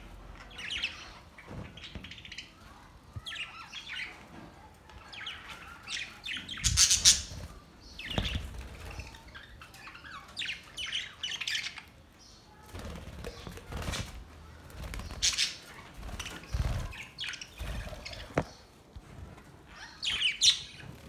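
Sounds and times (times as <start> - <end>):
budgerigars chattering and squawking: 5.2 - 11.8
wings flapping: 12.6 - 18.3.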